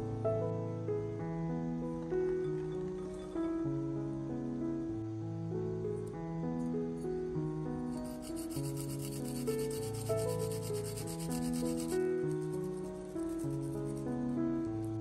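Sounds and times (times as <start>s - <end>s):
background music: 0.0s - 15.0s
garlic rasping on grater: 8.0s - 14.0s.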